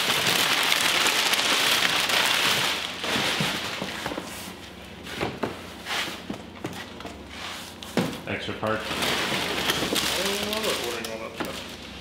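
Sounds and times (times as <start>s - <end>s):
packing paper crinkling: 0.0s - 4.2s, 8.9s - 11.8s.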